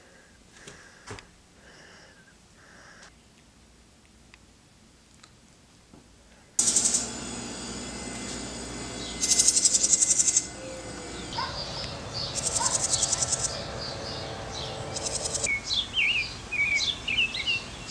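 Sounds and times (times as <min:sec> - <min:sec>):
birds singing buzzy trills: 0:06.6 - 0:17.9
quick falling bird calls: 0:09.0 - 0:15.5.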